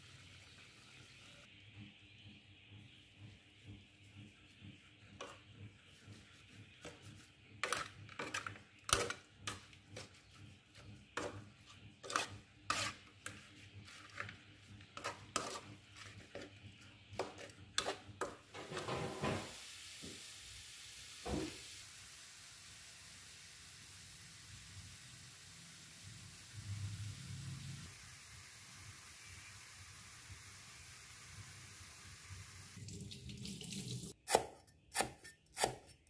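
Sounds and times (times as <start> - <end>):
metal spatula scraping a wok: 7.0 - 16.6, 17.2 - 19.3
chicken sizzling in oil: 18.4 - 34.1.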